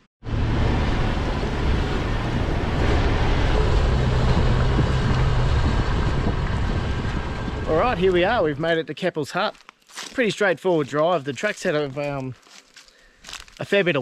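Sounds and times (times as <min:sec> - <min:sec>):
wind: 0:00.0 - 0:14.0
low engine hum: 0:00.2 - 0:08.6
tyres rolling over gravel: 0:02.5 - 0:12.5.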